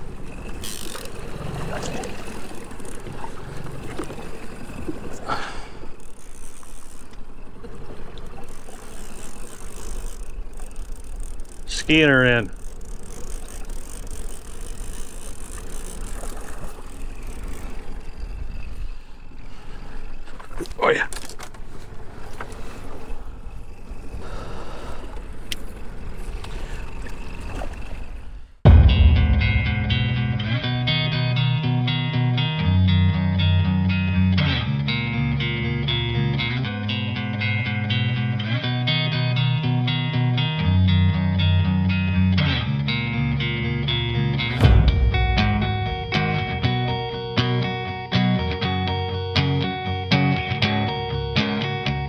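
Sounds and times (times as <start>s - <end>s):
low motor hum: 0.0s - 18.6s, 28.6s - 52.0s
choppy water: 0.0s - 29.4s
wind: 0.0s - 52.0s.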